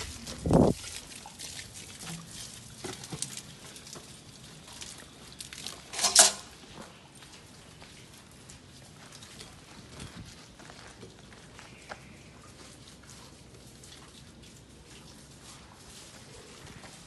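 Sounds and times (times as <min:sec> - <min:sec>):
pan scraping wet sand: 0:05.8 - 0:06.5.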